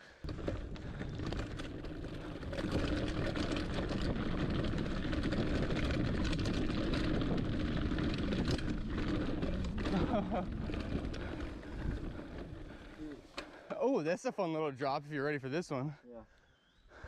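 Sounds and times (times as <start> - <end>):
bike clicks and rattles: 0.0 - 13.7
bike tyres and rushing air: 0.1 - 13.6.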